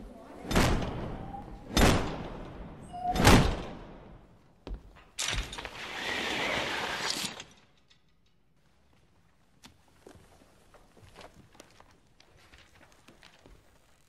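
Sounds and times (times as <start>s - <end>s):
shutters slamming with echo: 0.2s - 4.3s.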